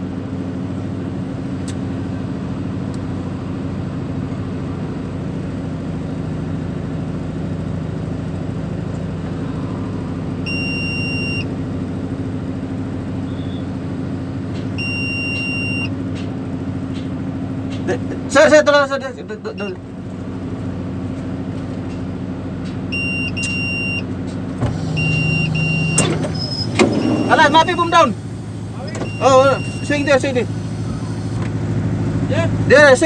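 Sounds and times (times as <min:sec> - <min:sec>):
diesel engine running: 0:00.0 - 0:33.0
electronic warning buzzer beeps: 0:10.5 - 0:11.5, 0:14.8 - 0:15.9, 0:23.0 - 0:24.1, 0:24.8 - 0:31.4.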